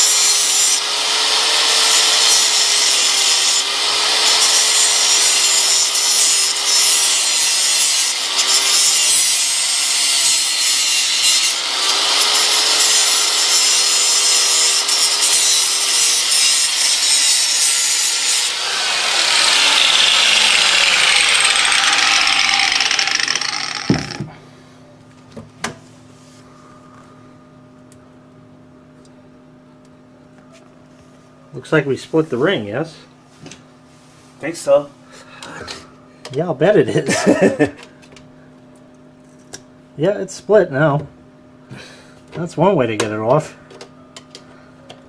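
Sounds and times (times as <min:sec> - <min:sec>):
angle grinder cutting metal: 0:00.0 - 0:24.3.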